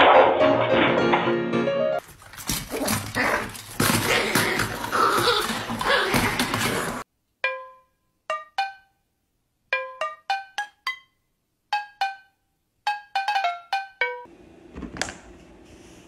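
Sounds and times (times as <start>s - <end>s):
puppy and kitten scuffling: 2.0s - 7.0s.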